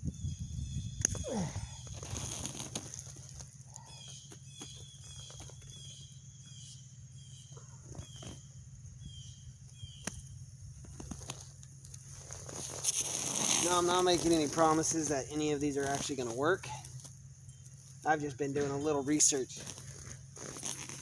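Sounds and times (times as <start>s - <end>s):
small bird chirping: 0.0s - 11.3s, 12.9s - 20.8s
steady low hum: 0.0s - 21.0s
rustling of vine canes: 1.2s - 5.9s, 10.7s - 21.0s.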